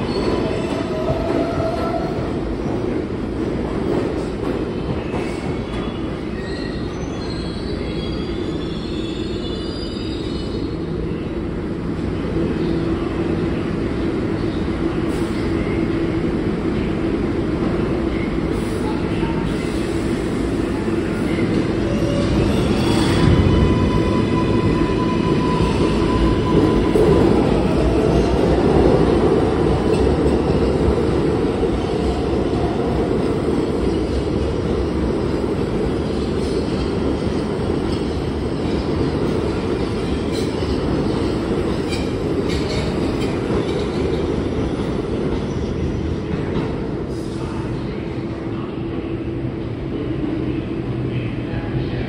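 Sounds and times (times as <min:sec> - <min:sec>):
subway train wheels rumbling: 0:00.0 - 0:52.0.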